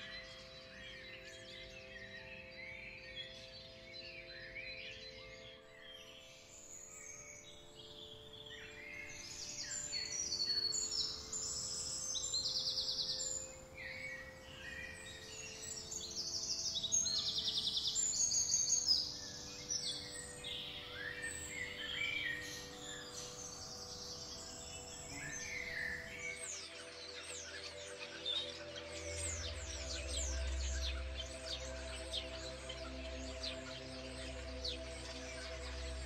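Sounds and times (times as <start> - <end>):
birds chirping and calling: 6.9 - 36.0
faint low drone: 8.0 - 36.0.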